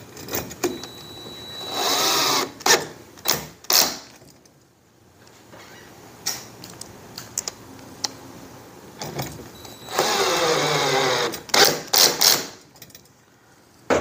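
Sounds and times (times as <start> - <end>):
cordless drill whirring: 9.6 - 11.7.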